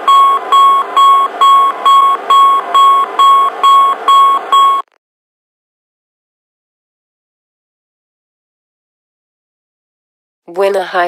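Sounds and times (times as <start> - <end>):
repetitive warning chime: 0.0 - 4.9.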